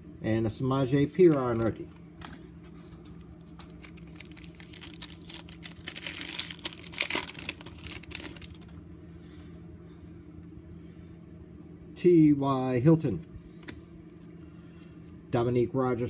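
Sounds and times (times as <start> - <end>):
foil wrapper tearing and crinkling: 3.5 - 8.8.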